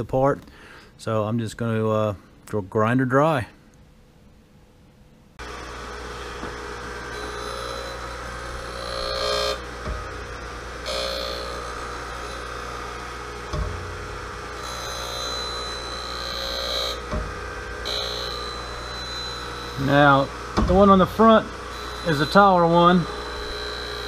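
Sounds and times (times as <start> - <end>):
grinder motor hum: 5.4 - 24.0
grinding wheel hissing scrape: 5.4 - 24.0.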